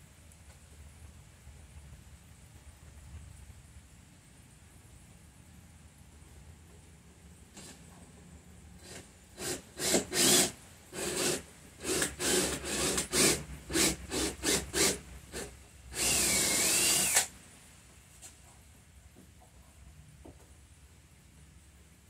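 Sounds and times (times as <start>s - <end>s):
cordless drill whining into wood: 8.8s - 17.4s.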